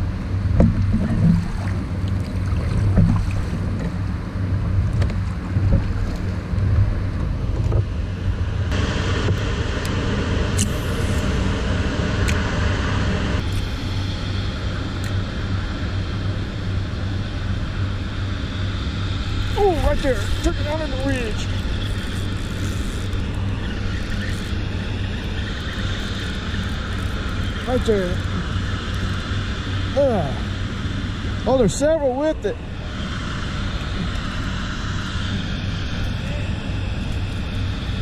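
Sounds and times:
wind on microphone: 0:00.0 - 0:29.9
river water moving: 0:00.3 - 0:07.2.

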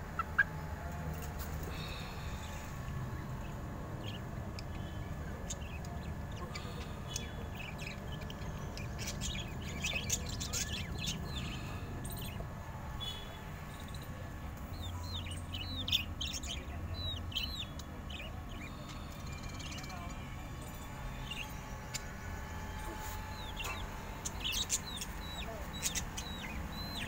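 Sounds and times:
steady low hum: 0:00.0 - 0:27.0
budgerigars chirping: 0:23.1 - 0:27.0.

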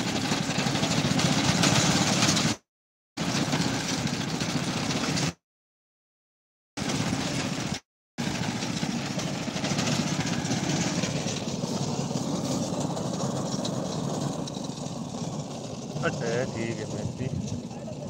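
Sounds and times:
engine running with hiss: 0:00.0 - 0:02.6, 0:03.2 - 0:05.4, 0:06.8 - 0:18.0.

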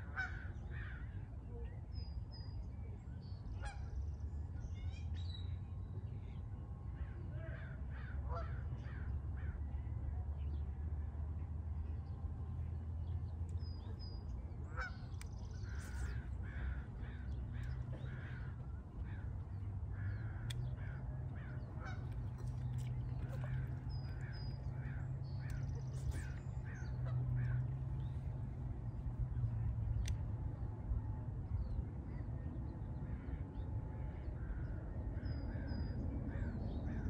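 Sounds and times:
steady low rumble: 0:00.0 - 0:37.0
birds calling: 0:13.6 - 0:30.2.

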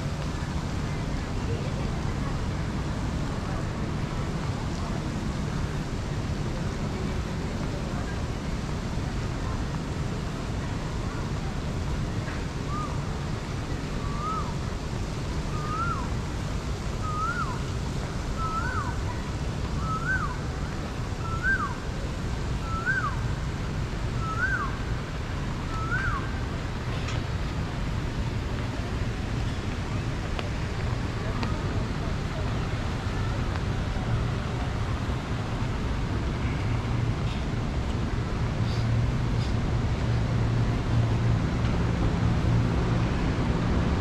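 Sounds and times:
low outdoor rumble: 0:00.0 - 0:44.0
bird calling: 0:14.0 - 0:14.5, 0:15.5 - 0:16.1, 0:17.0 - 0:17.6, 0:18.4 - 0:19.0, 0:19.8 - 0:20.4, 0:21.2 - 0:21.8, 0:22.6 - 0:23.2, 0:24.2 - 0:24.8, 0:25.7 - 0:26.3.

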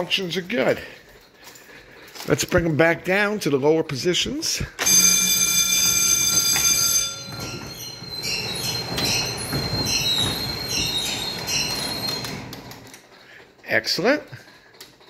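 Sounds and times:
rhythmic mechanical squeak: 0:06.2 - 0:13.2.

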